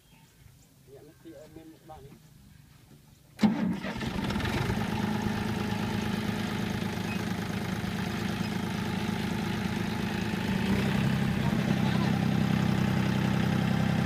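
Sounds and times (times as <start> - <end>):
tractor diesel engine: 3.4 - 14.0.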